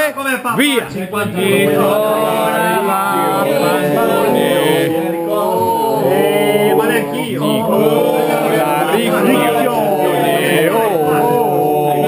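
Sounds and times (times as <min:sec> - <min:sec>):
men singing unaccompanied: 0:01.0 - 0:12.0.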